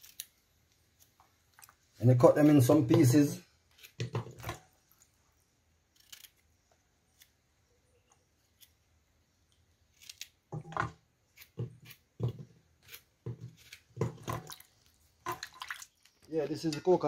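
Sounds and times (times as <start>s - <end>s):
knife slicing okra: 9.8s - 14.5s.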